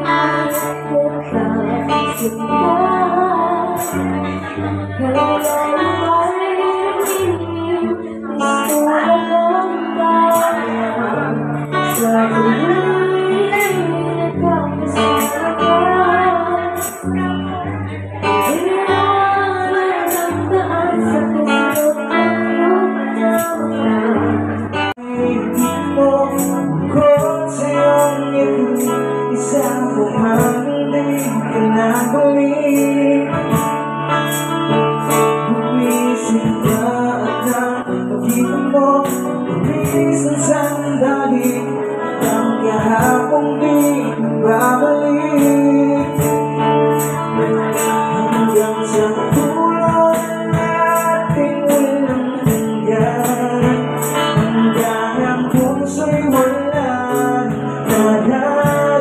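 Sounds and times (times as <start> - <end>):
acoustic guitar: 0.0 - 59.0
woman singing: 0.0 - 59.0
high ticking percussion beat: 25.5 - 59.0.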